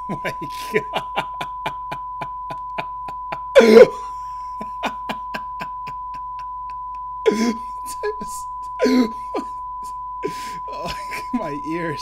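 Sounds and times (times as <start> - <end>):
high-pitched beep-like tone: 7.7 - 12.0.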